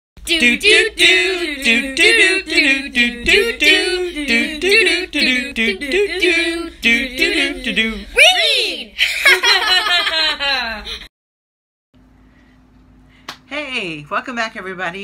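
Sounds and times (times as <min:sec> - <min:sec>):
person singing unaccompanied: 0:00.2 - 0:08.3.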